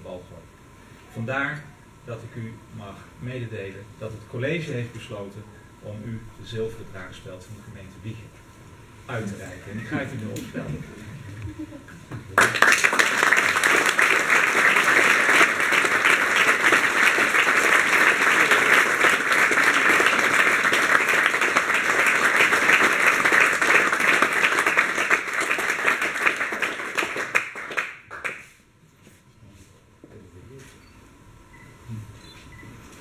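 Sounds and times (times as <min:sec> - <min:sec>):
audience applauding: 0:12.3 - 0:28.5.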